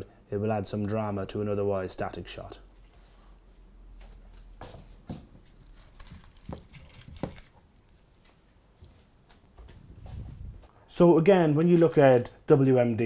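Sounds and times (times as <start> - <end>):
onion skins rustling: 5.2 - 8.4.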